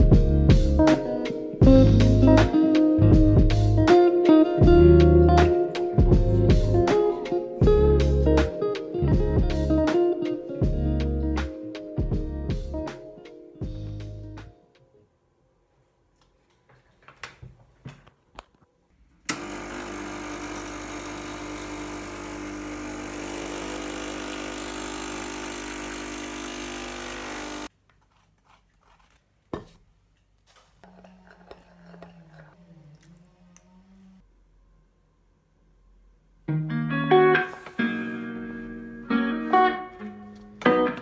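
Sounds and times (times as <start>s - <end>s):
espresso machine humming and hissing: 19.3s - 27.7s
spoon stirring in ceramic cup: 30.6s - 33.0s.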